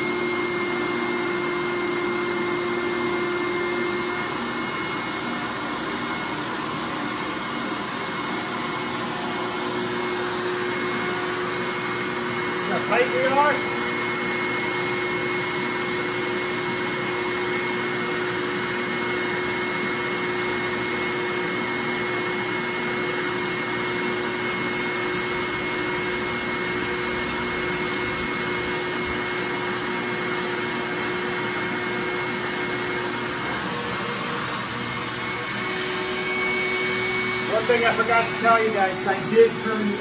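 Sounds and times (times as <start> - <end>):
motor humming: 23.9 - 29.4.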